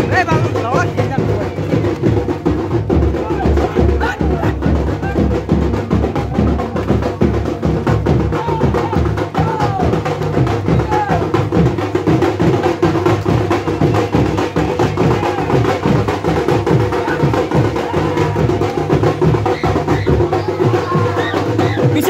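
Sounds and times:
drums beating fast rhythm: 0.0 - 22.0
men shouting: 3.0 - 11.8, 13.4 - 22.0.

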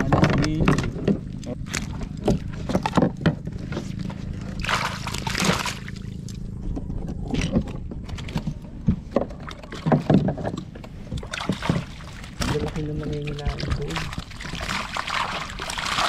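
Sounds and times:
basket knocking against hull: 0.0 - 15.0
basket splashing into water: 4.6 - 6.2, 11.2 - 16.0.

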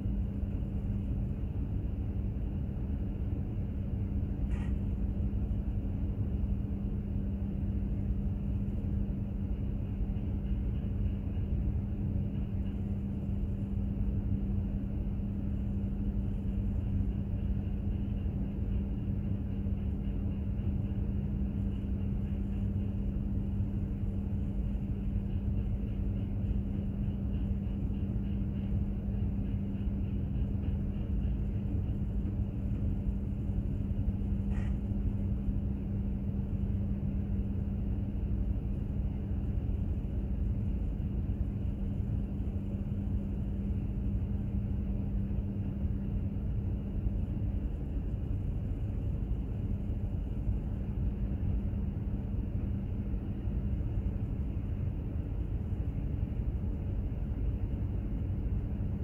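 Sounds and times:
constant machinery hum: 0.0 - 59.0
ship engine rumble: 0.0 - 59.0.

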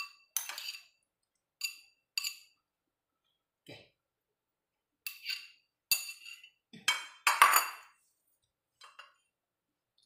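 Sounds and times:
metal spoon clinking on ceramic dishes: 0.0 - 1.0, 1.6 - 2.6, 5.0 - 8.0.

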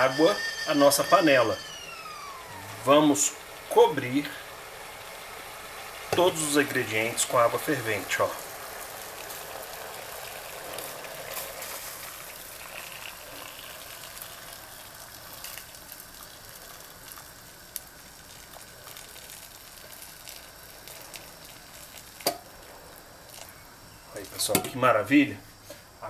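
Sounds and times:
water pouring from a kettle: 2.7 - 23.5.

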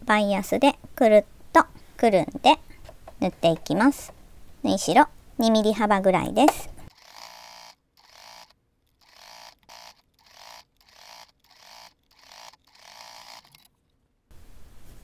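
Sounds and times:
electric sewing machine stitching: 6.9 - 13.7.

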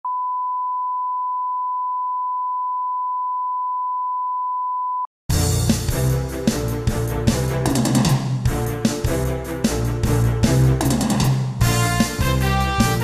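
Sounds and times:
music: 5.3 - 13.0.

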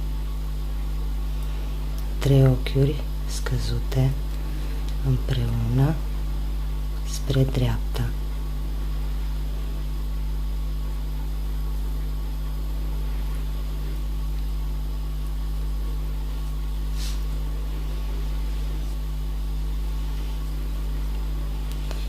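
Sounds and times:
low electrical hum: 0.0 - 22.0
faint hiss: 16.8 - 19.0.

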